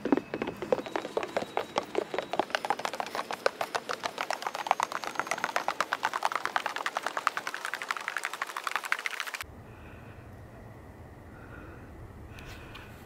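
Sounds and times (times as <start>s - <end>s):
footsteps on wooden boardwalk: 0.0s - 9.2s.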